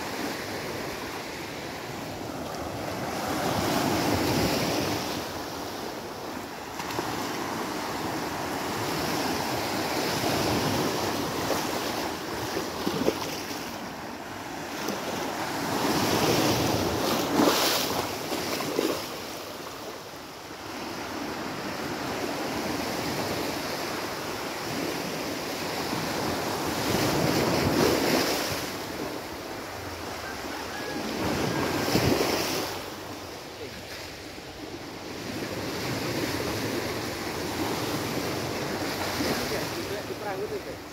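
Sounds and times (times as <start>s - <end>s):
waves breaking on a beach: 0.0s - 40.9s.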